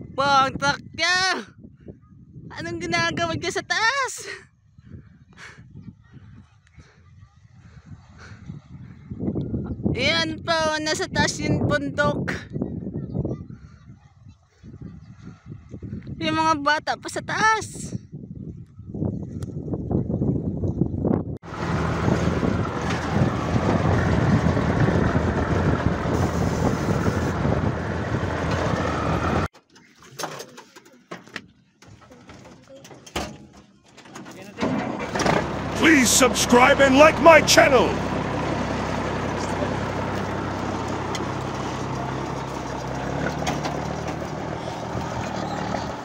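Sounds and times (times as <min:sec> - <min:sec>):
truck engine and ride noise: 0:05.3 - 0:13.5, 0:20.7 - 0:46.0.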